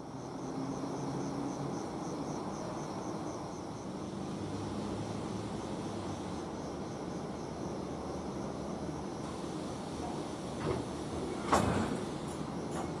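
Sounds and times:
cricket chirping: 0.0s - 13.0s
train coaches rumbling past: 0.0s - 13.0s.

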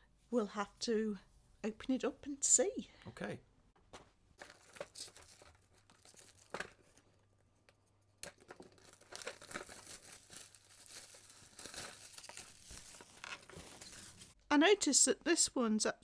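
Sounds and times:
plastic bag crinkling: 4.4s - 7.1s, 8.2s - 14.4s.

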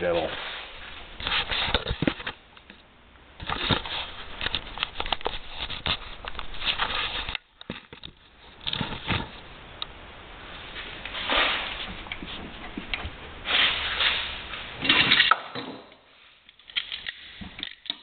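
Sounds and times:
metal parts clicking and tapping: 16.5s - 18.0s.

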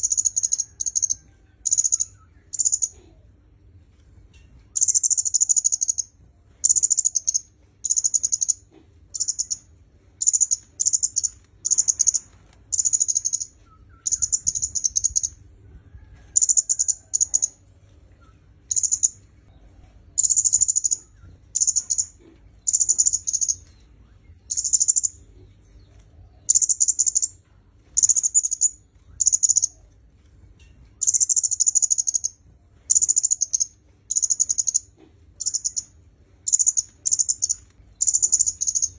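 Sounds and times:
bird high trilled calls: 0.0s - 3.0s, 4.8s - 15.4s, 18.7s - 19.2s, 20.2s - 23.8s, 24.4s - 25.3s, 26.5s - 27.4s, 28.0s - 29.8s, 31.0s - 38.9s.

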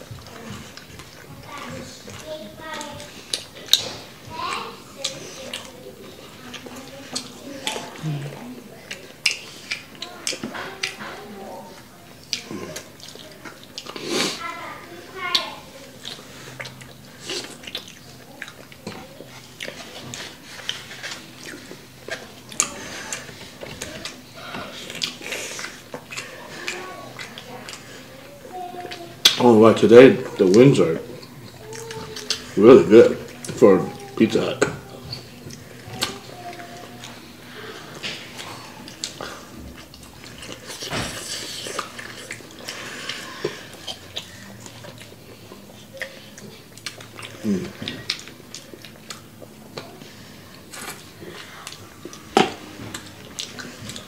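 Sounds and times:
chewing and biting food: 0.0s - 54.0s.

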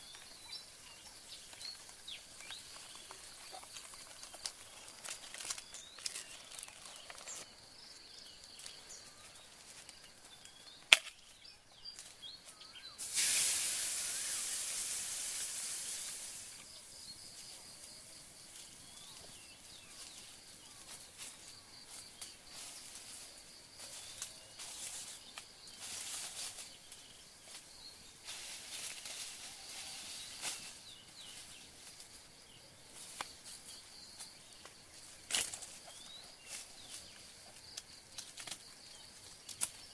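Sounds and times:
bird chirps: 0.0s - 13.0s
wood fire crackling: 1.3s - 7.5s
high insect drone: 12.7s - 39.9s
wok sizzling: 13.0s - 16.8s.

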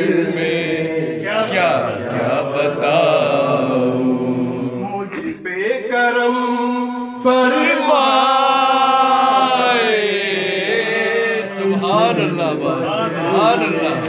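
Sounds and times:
man singing into a microphone: 4.7s - 14.0s.

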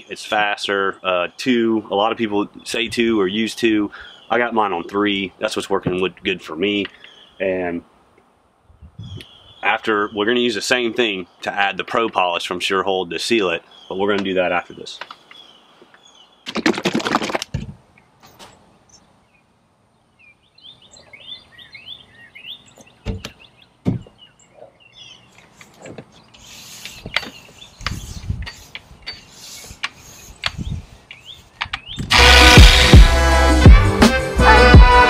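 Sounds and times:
small birds chirping: 0.0s - 16.5s, 17.9s - 32.1s
knocks and handling taps: 25.4s - 26.2s, 26.8s - 29.2s.

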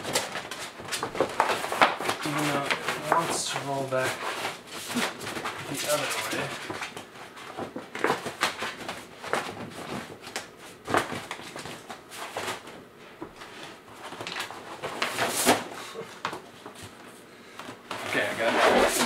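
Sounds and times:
fabric rustling and scraping: 18.0s - 19.0s.

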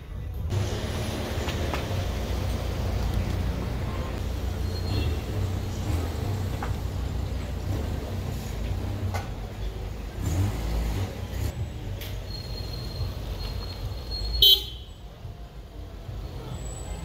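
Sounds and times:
street traffic rumble: 0.0s - 17.0s.

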